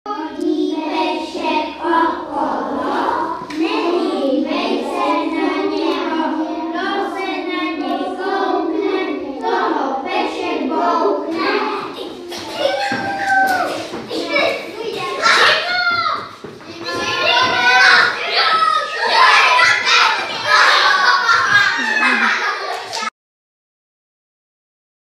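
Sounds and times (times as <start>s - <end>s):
children singing: 0.1s - 23.1s.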